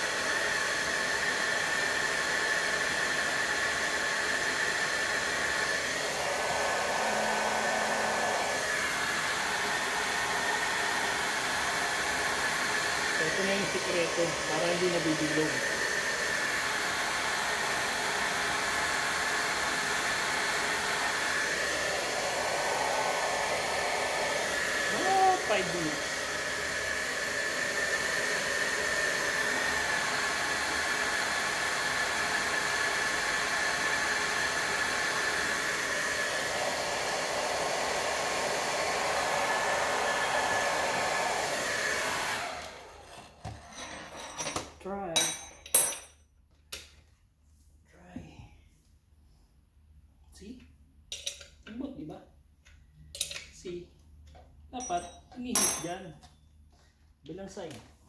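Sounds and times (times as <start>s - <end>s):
hair dryer blowing: 0.0s - 43.6s.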